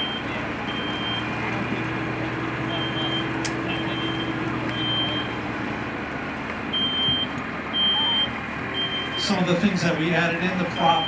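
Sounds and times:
smoke alarm beeping: 0:02.7 - 0:05.4, 0:06.8 - 0:09.3.

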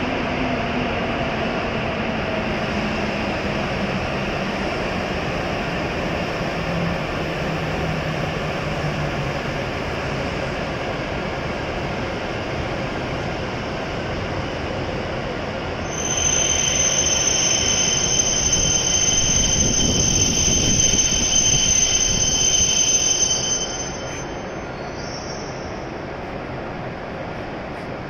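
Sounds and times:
train rolling slowly: 0:00.0 - 0:28.0
high brake squeal: 0:15.8 - 0:25.8.

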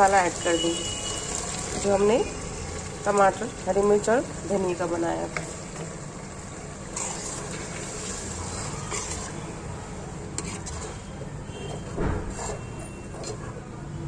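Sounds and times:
chicken sizzling in a pot: 0:00.0 - 0:11.2
spoon scraping a pot: 0:06.9 - 0:09.5, 0:10.3 - 0:13.6.

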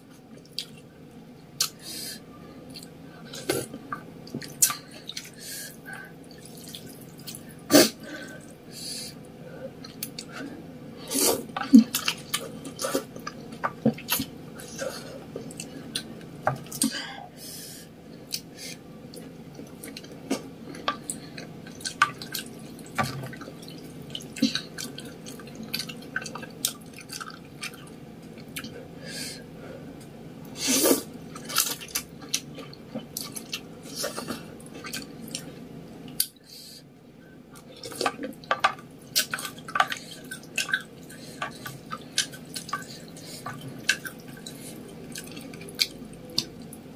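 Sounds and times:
chewing and mouth smacks: 0:19.1 - 0:28.8, 0:37.5 - 0:46.8.

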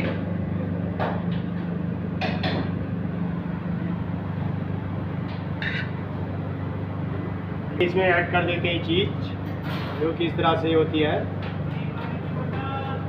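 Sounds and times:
kitchen equipment humming: 0:00.0 - 0:13.0.

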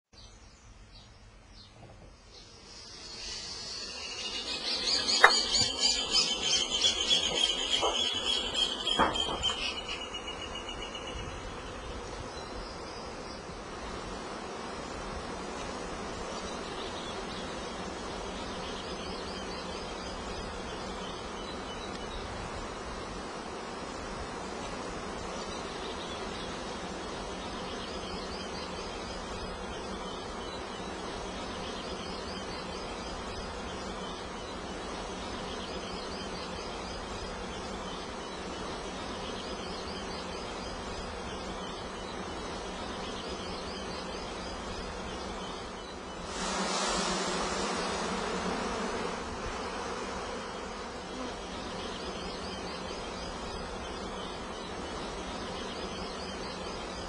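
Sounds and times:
honeybees buzzing: 0:01.3 - 0:57.0
loud rushing noise: 0:46.2 - 0:48.2.

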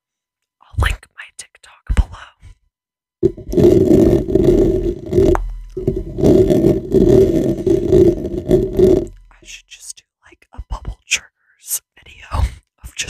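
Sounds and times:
fingers scratching a microphone: 0:03.2 - 0:09.5.

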